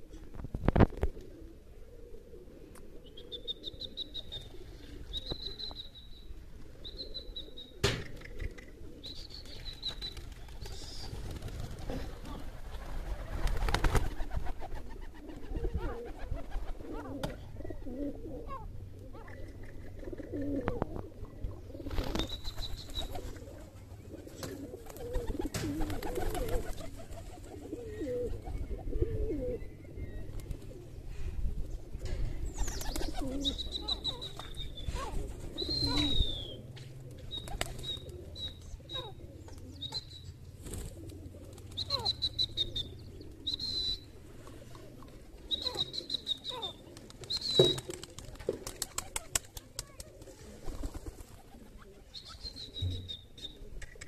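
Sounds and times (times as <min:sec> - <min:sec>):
birds calling: 0:31.8 - 0:48.0.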